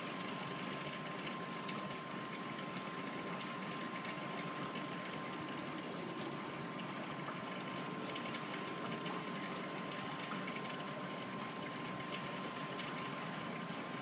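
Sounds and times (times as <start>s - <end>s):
aquarium bubbling: 0.0s - 14.0s
thin steady whine: 0.0s - 14.0s.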